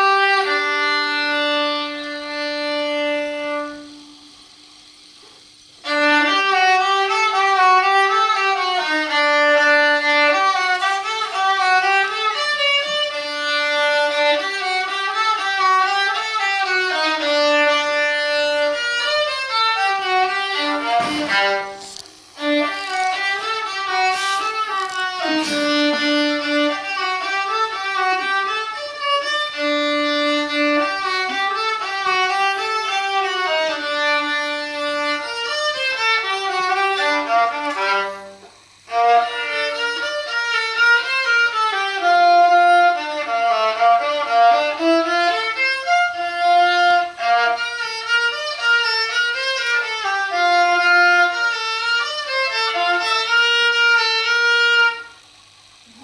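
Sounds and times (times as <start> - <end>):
violin melody: 0.0 - 4.3, 5.8 - 55.2.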